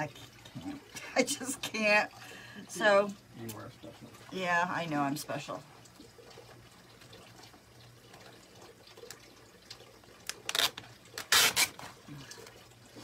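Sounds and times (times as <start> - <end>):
plastic sheets crinkling: 10.3 - 12.0.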